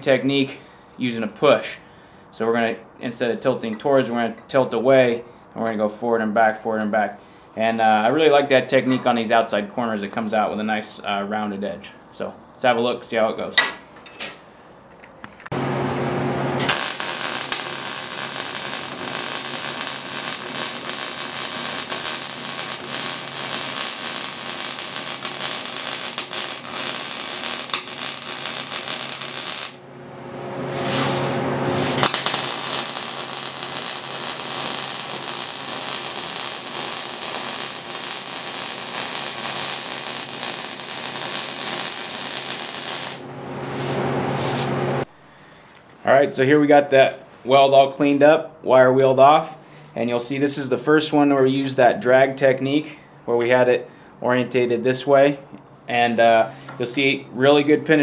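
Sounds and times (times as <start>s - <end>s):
welder humming: 15.5s - 45.1s
welding arc crackling: 16.5s - 44.0s.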